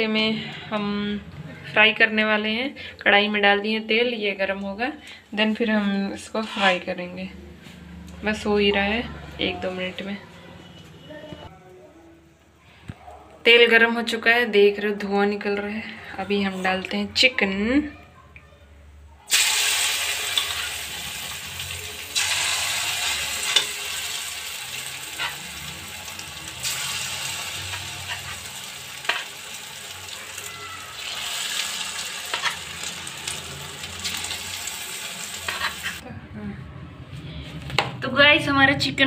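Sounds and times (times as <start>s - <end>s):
chicken deep-frying in oil: 19.3s - 36.0s.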